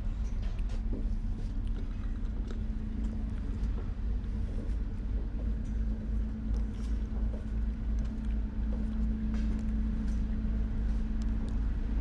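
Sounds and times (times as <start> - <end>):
ferry engines droning: 0.0 - 12.0.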